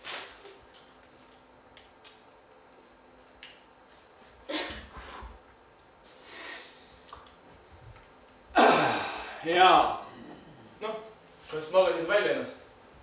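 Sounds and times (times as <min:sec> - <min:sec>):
person breathing: 0:06.1 - 0:07.0.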